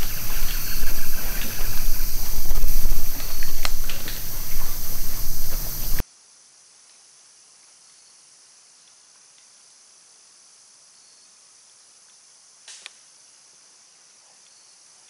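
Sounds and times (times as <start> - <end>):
faint rustle: 0.0 - 6.0
loud rush of noise: 0.0 - 6.0
insects chorus: 0.0 - 15.0.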